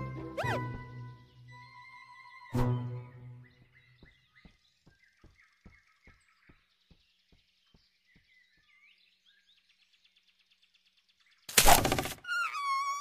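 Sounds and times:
faint high chirping: 0.4 - 9.4, 12.2 - 13.0.

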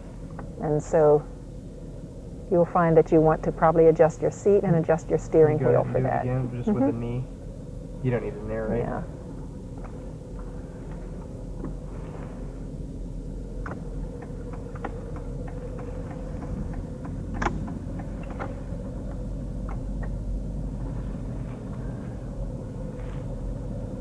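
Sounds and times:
car cabin rumble: 2.5 - 7.3, 8.0 - 24.0.

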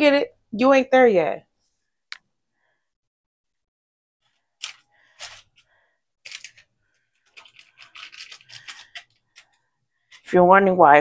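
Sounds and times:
metal fork scraping foil pan: 7.3 - 9.5.

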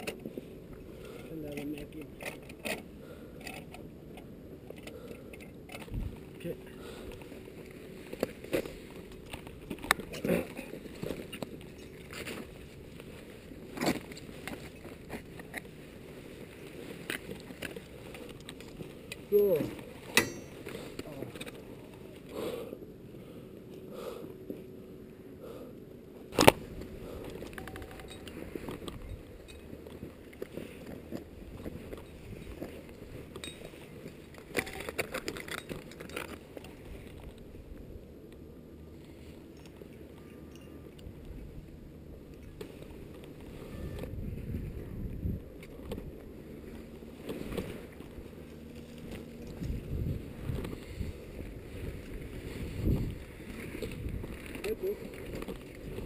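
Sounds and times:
wind rumbling on microphone: 5.6 - 6.6, 41.1 - 56.0.

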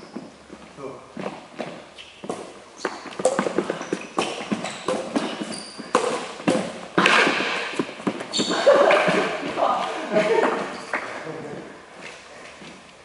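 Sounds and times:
shoe squeaks: 0.0 - 0.5, 1.6 - 9.6, 10.5 - 11.2
rackets hitting shuttlecock: 2.3 - 9.6.

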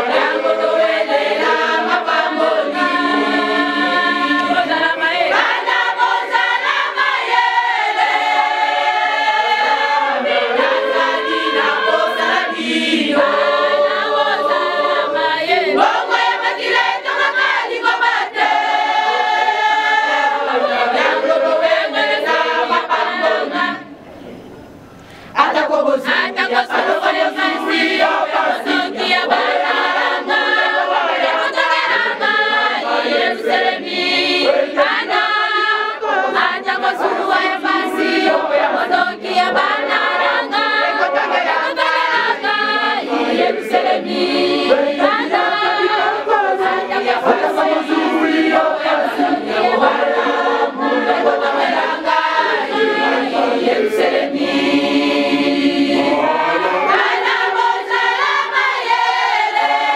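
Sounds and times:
women's choir singing: 0.0 - 59.9.

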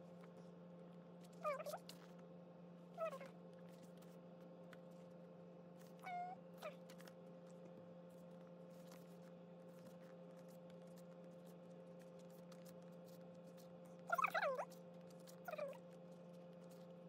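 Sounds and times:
cat meowing: 3.0 - 3.4, 6.0 - 6.8, 14.1 - 14.7.

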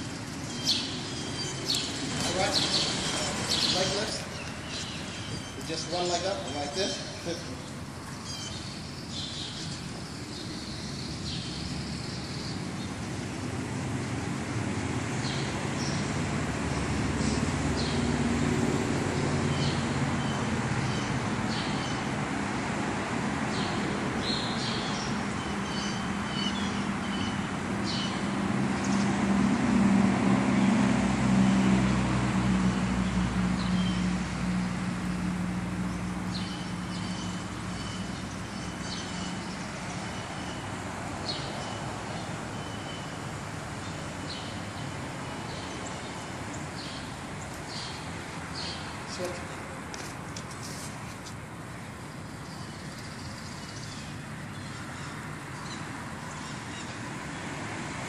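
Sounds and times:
vehicle engine passing by: 0.0 - 6.6, 11.2 - 24.2, 24.9 - 49.6
traffic noise: 0.0 - 58.0.

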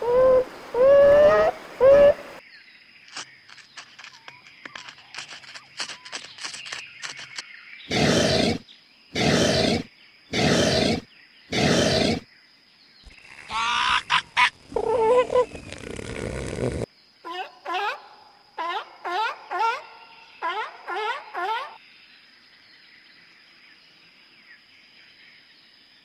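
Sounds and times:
faint clicks and squeaks: 3.1 - 7.4.

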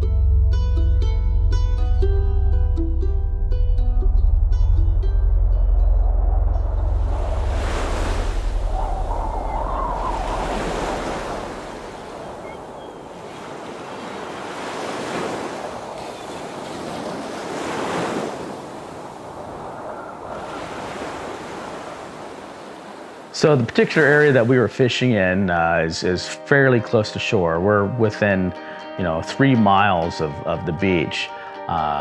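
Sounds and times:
wind: 4.4 - 25.9
ocean waves breaking: 4.7 - 24.8.

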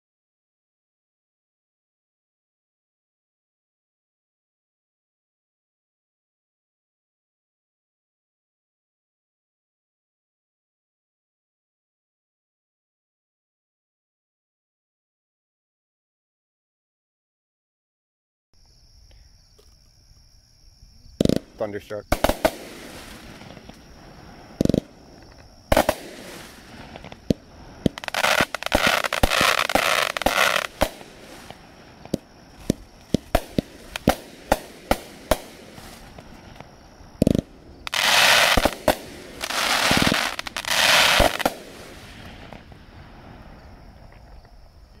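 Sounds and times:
firework bangs: 21.2 - 44.1
firework launch thumps: 21.2 - 44.3
dense firework crackling: 21.2 - 44.6.

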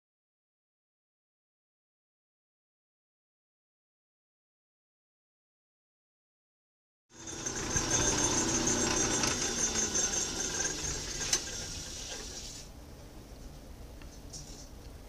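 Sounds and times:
metal lathe running with whine: 7.1 - 12.6.

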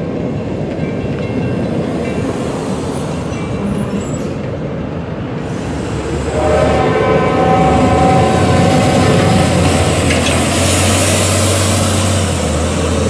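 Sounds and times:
freight train rumbling by: 0.0 - 13.0
locomotive air horn: 5.5 - 12.2.

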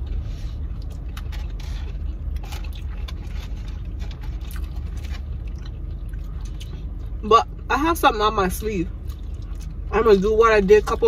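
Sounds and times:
car engine hum inside cabin: 0.0 - 11.0
chewing: 0.2 - 7.2, 9.0 - 9.9.

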